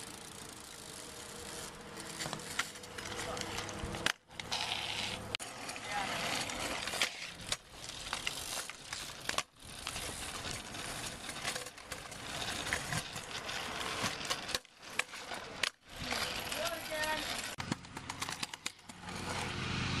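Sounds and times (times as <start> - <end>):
scooter wheels rolling on concrete: 0.0 - 20.0
scooter deck clacking on ground: 10.6 - 19.6.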